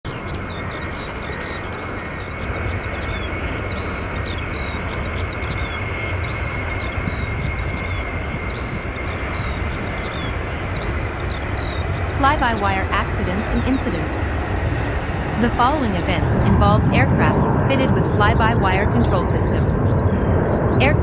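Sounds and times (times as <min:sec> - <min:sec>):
small birds chirping: 0:00.1 - 0:16.4
jet engines running: 0:00.1 - 0:21.0.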